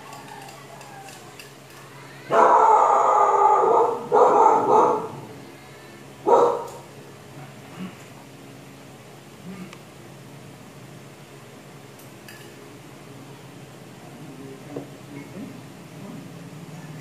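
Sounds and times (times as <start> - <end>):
dog barking: 2.3 - 5.3, 6.2 - 6.8.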